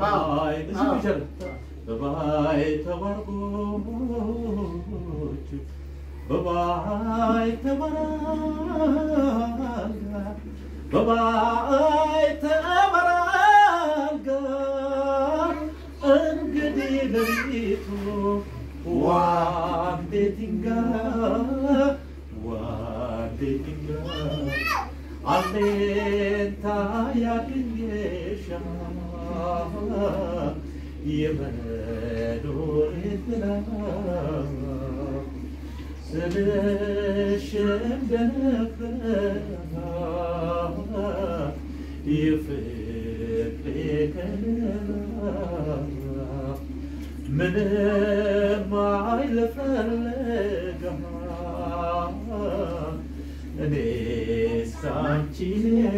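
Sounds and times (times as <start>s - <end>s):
person singing unaccompanied: 0.0s - 55.9s
quiet voices: 0.0s - 55.9s.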